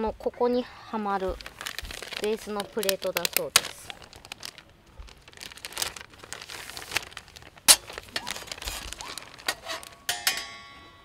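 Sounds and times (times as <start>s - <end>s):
packaging crinkling: 1.2s - 10.1s.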